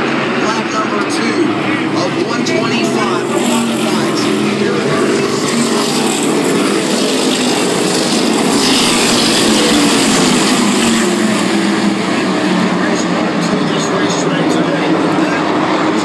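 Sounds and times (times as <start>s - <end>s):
race car engines passing: 0.0s - 16.0s.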